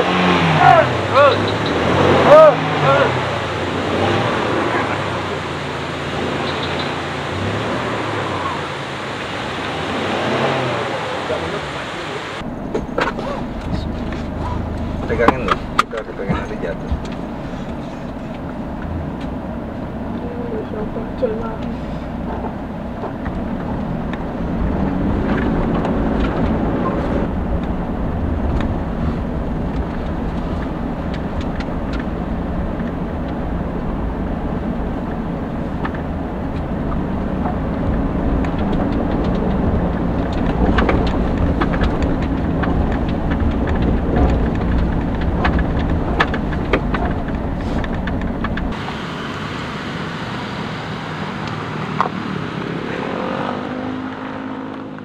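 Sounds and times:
car engine and road rumble: 0:00.0 - 0:55.0
knocks and rattles: 0:35.1 - 0:48.8.

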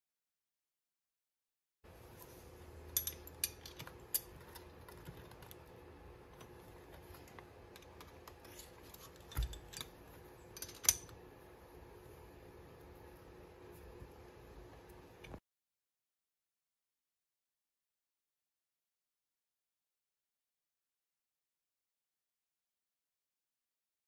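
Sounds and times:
faint steady hum: 0:01.9 - 0:15.4
metal clicks and clinks: 0:02.9 - 0:05.5, 0:07.8 - 0:11.2.

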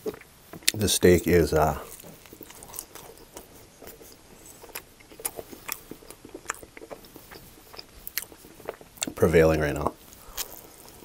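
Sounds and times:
close chewing with wet smacks: 0:00.0 - 0:00.8, 0:01.8 - 0:11.0.

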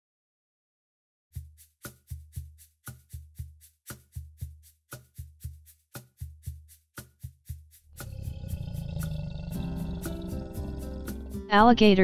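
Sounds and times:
music drum beat: 0:01.4 - 0:12.0
low rumbling roar: 0:08.0 - 0:11.5.

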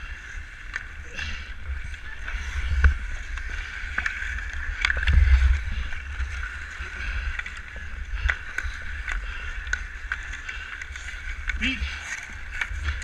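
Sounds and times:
wind buffeting microphone: 0:01.2 - 0:13.0
hockey sticks and puck clacking: 0:07.3 - 0:13.0.

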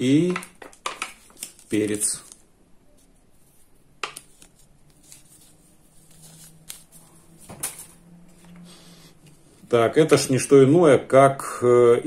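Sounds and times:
paper packaging clicks and rustles: 0:00.1 - 0:02.5, 0:04.0 - 0:08.6.

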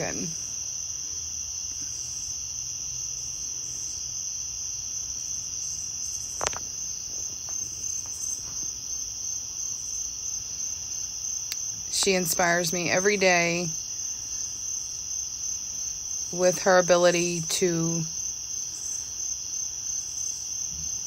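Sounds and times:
insect chorus trilling: 0:00.0 - 0:21.0.

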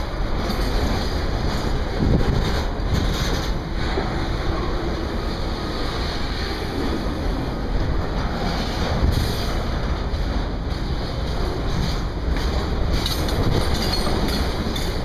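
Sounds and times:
train wheels rumbling on rail: 0:00.0 - 0:15.0
wind buffeting microphone: 0:00.0 - 0:15.0.

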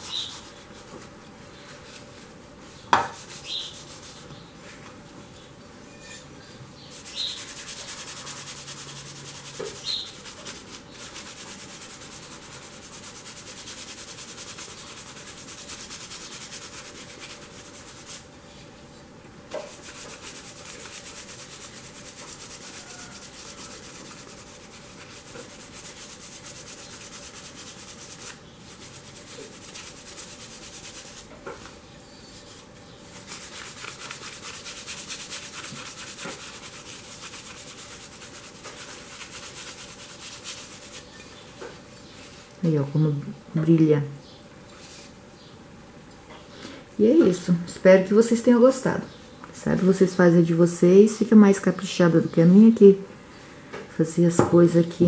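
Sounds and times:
paper towel rubbing glass: 0:19.7 - 0:31.2.

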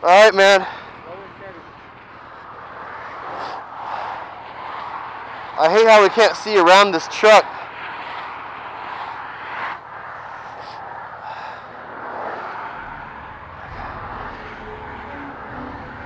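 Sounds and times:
highway traffic passing: 0:00.0 - 0:16.0
low rumble: 0:11.9 - 0:16.0.

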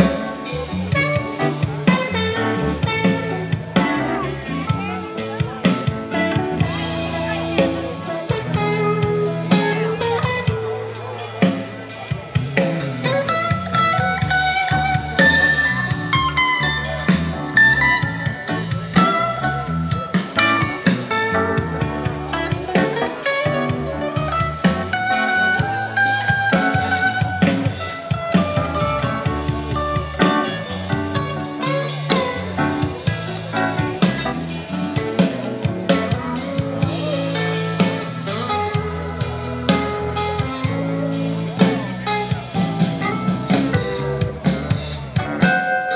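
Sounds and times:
drum kit: 0:00.0 - 0:45.9
electric guitars playing melody: 0:00.0 - 0:45.9
keyboard: 0:00.0 - 0:45.9.

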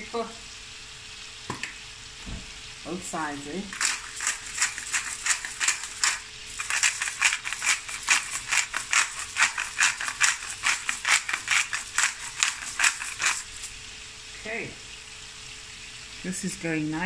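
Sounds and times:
pepper mill grinding clicks: 0:03.7 - 0:13.6.

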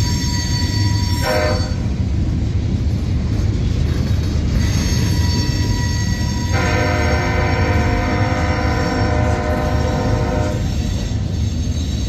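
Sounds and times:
steel train wheels rumbling on rail: 0:00.0 - 0:12.0
high wheel squeal: 0:04.5 - 0:12.0.

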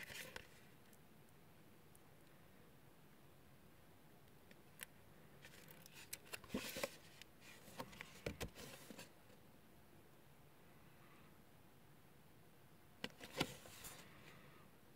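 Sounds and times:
cardboard card rustling: 0:00.0 - 0:00.6, 0:05.4 - 0:09.1, 0:13.0 - 0:14.0.

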